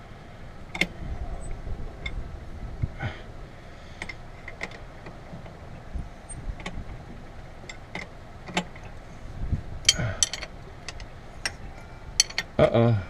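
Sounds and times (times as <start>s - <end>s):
hand tools clicking and clinking: 9.9s - 11.6s, 12.2s - 12.6s.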